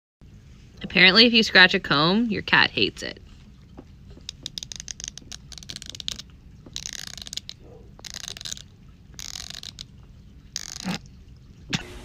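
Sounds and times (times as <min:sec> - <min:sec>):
comb teeth scratched: 0:04.2 - 0:11.1.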